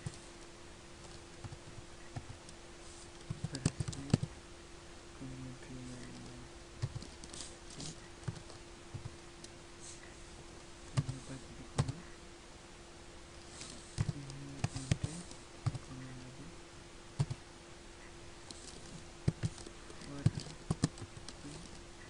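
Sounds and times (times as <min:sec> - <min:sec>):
low steady hum: 0:00.0 - 0:22.0
keyboard typing: 0:01.0 - 0:02.5, 0:03.1 - 0:04.4, 0:05.9 - 0:09.5, 0:10.9 - 0:12.1, 0:13.6 - 0:16.4, 0:17.2 - 0:17.4, 0:18.0 - 0:21.8.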